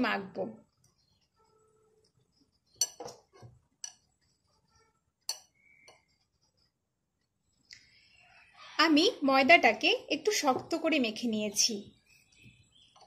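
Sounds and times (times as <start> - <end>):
clinks against glass bowl: 2.8 - 3.2.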